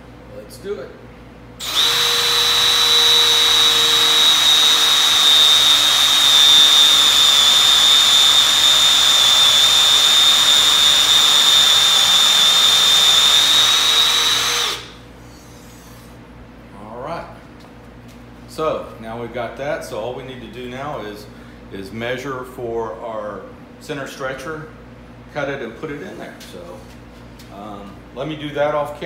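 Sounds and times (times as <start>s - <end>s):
electric drill boring into wood: 1.6s - 15.0s.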